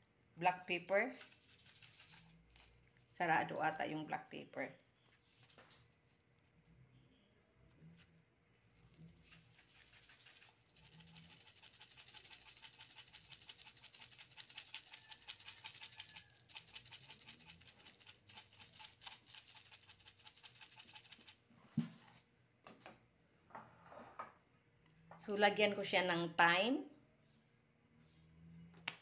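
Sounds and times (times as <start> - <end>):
pepper rattling into bowl: 0.8 - 4.0, 8.6 - 21.4.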